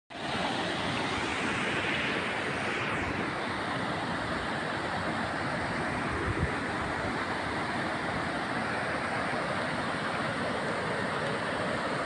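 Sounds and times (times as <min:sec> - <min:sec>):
wind buffeting microphone: 0:05.3 - 0:07.6.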